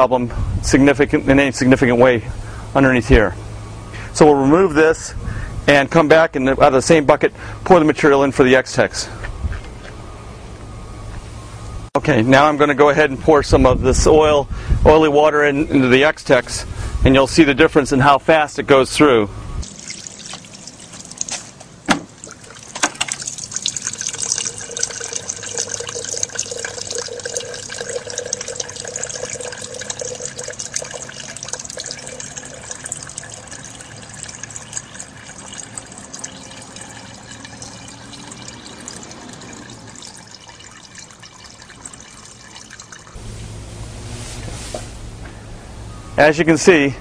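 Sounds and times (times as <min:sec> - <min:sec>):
water pouring from bucket: 0:19.6 - 0:43.2
water trickling into glass jar: 0:19.6 - 0:43.2
bucket knocks: 0:21.9 - 0:22.2.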